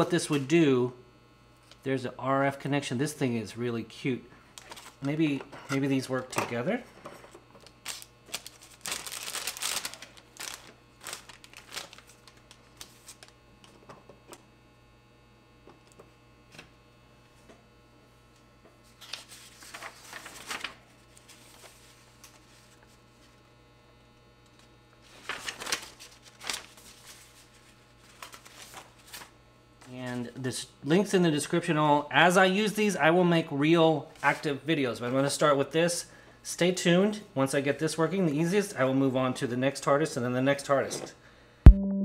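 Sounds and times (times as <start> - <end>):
paper pages rustling: 4.6 - 5.2, 7.6 - 13.4, 18.9 - 23.0, 25.0 - 29.4.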